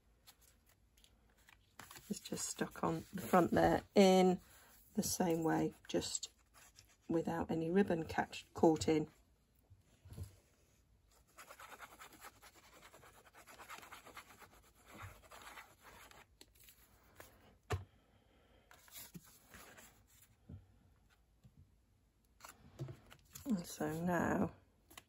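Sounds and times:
card being handled: 0.2 - 2.4.

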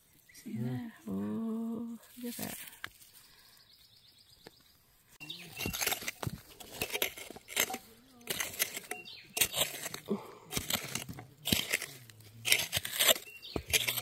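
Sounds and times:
hand tool scraping soil: 5.2 - 14.0
stones knocking: 5.5 - 14.0.

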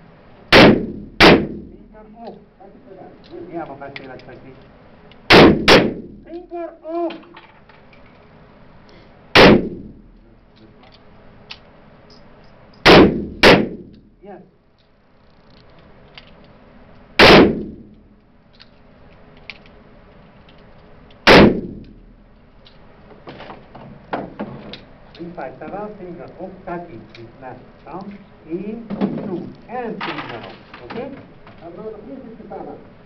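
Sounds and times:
revolver shots echoing indoors: 0.5 - 1.8, 5.3 - 6.3, 9.3 - 10.2, 12.8 - 14.1, 17.2 - 18.0, 21.2 - 22.2.

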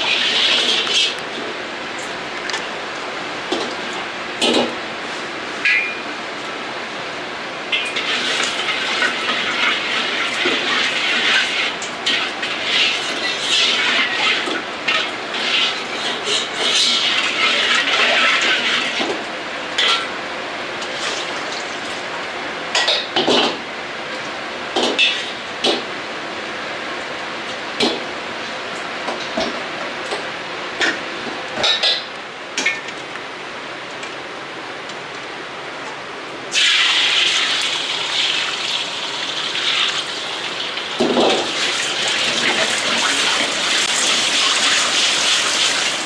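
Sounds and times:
gas burner rushing: 36.5 - 46.0
liquid sizzling in hot pan: 36.5 - 46.0.

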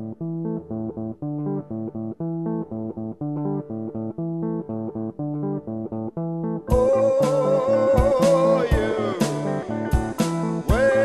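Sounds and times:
guitar picking a riff: 0.0 - 11.0
bass line: 6.7 - 11.0.

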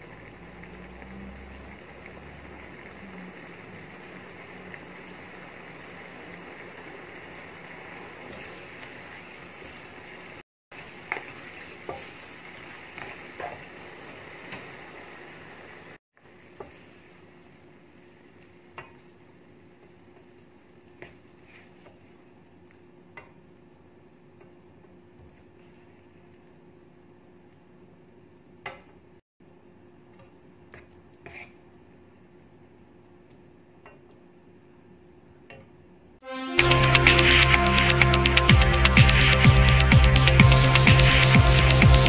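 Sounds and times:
stir-fry sizzling and bubbling: 0.0 - 27.6, 35.5 - 42.0
spoon scraping a pan: 30.8 - 31.6.

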